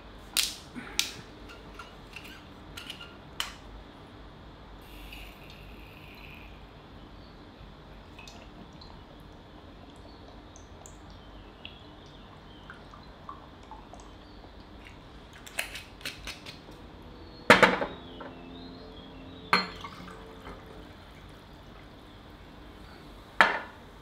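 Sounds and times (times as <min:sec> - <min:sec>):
dripping and trickling: 0:08.1 - 0:16.8
small glass clinks: 0:19.5 - 0:20.1
liquid pouring into glass: 0:19.5 - 0:21.4.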